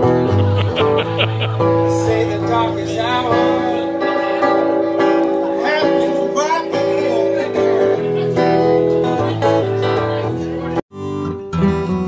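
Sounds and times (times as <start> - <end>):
low bass line: 0.0 - 3.3
guitar music: 0.0 - 12.0.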